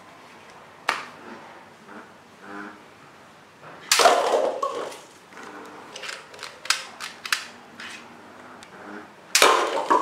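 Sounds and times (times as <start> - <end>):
toy gun shot: 3.9 - 4.4, 9.4 - 10.0.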